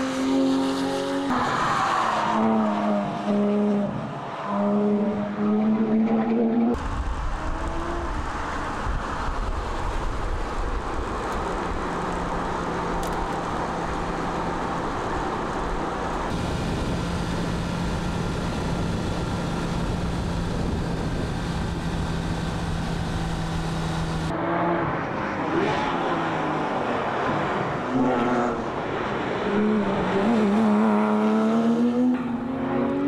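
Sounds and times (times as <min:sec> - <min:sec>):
road noise: 0:00.0 - 0:33.0
car engine droning: 0:02.3 - 0:25.0.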